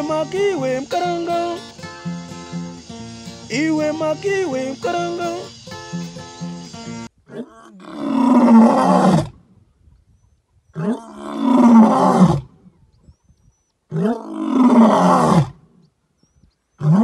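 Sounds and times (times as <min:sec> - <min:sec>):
animal roaring: 0:07.3 - 0:09.4, 0:10.8 - 0:12.5, 0:13.9 - 0:15.5.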